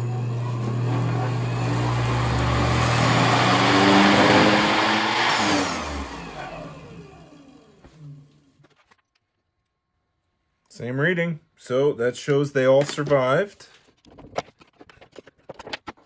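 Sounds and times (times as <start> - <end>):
treadmill motor running and braking: 0.0 - 8.5.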